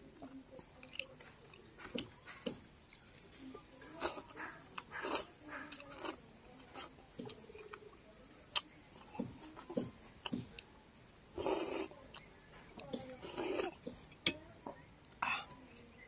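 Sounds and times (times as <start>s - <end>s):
chewing mouth sounds: 4.0s - 7.9s.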